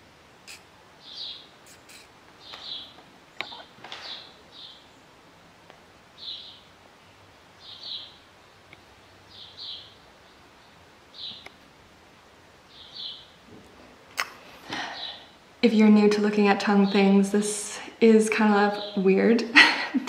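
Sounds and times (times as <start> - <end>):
bird chirping: 0.5 - 5.1, 6.2 - 11.5, 12.7 - 13.4, 14.8 - 15.3.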